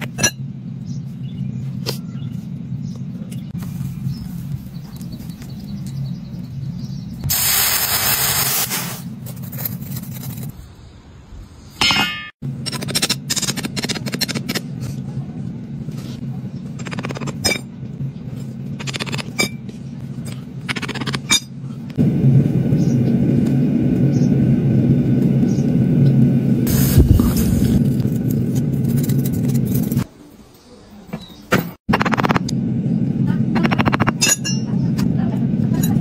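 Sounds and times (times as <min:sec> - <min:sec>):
metal tools scraping in sand: 0:08.0 - 0:10.6
machine hum: 0:31.9 - 0:36.0.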